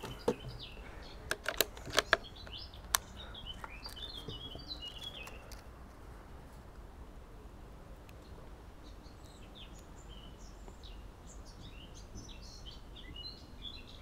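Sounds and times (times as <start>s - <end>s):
small birds chirping: 0.0s - 6.1s, 7.9s - 14.0s
metallic clicks from air rifle: 1.2s - 4.1s.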